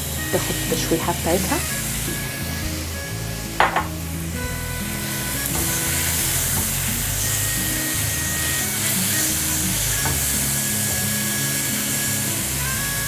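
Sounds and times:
background music: 0.0 - 13.0
quick knocks: 3.6 - 4.0
food sizzling in a frying pan: 5.0 - 13.0.

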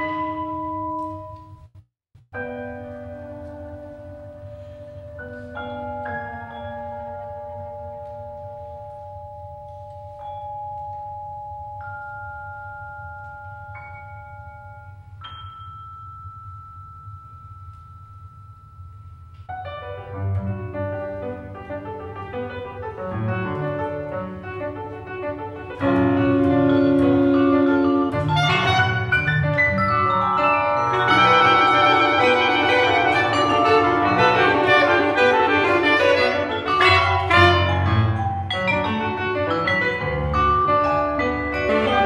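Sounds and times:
piano: 0.0 - 42.0
vibraphone notes: 4.5 - 19.8, 25.8 - 42.0
jazz chamber ensemble: 19.7 - 42.0.

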